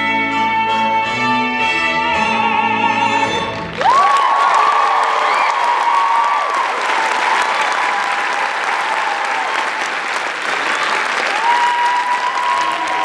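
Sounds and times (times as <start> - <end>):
audience applauding: 3.6 - 13.0
voices cheering: 3.8 - 13.0.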